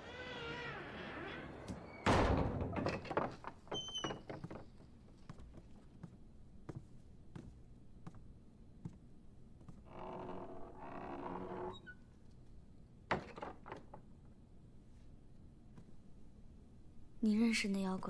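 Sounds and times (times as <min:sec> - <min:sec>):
gate squeak: 0:00.0 - 0:03.0
wooden gates shutting with thud: 0:00.0 - 0:04.8, 0:13.1 - 0:14.0
gate knocks and rattles: 0:01.4 - 0:04.6.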